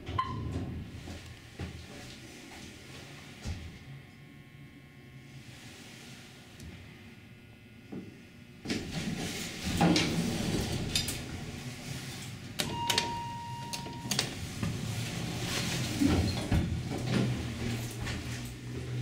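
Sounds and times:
elevator doors sliding closed: 8.8s - 18.5s
elevator button clicks: 12.6s - 14.3s.

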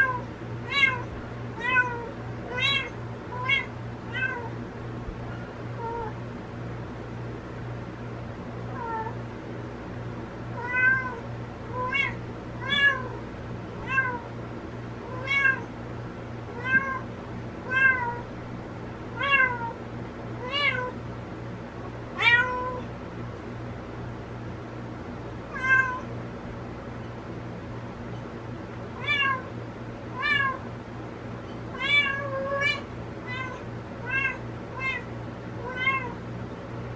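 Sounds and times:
cat meowing: 0.0s - 4.5s, 5.8s - 6.2s, 8.7s - 9.2s, 10.6s - 13.2s, 13.8s - 14.3s, 15.1s - 15.7s, 16.5s - 17.0s, 17.7s - 18.2s, 19.2s - 19.8s, 20.4s - 21.0s, 22.2s - 22.9s, 25.5s - 26.1s, 29.0s - 29.5s, 30.2s - 30.6s, 31.7s - 36.2s.

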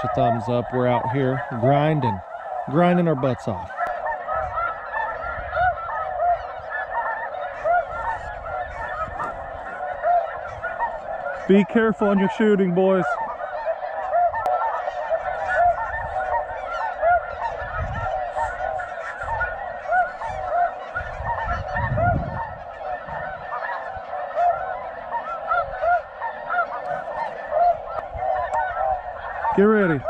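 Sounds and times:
geese honking: 0.0s - 30.0s.

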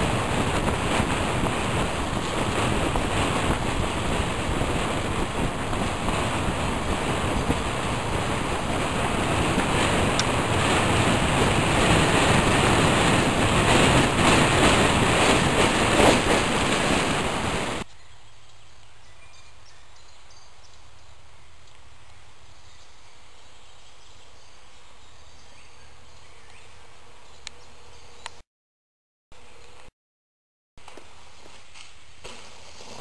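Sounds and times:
wind buffeting microphone: 0.0s - 17.9s.

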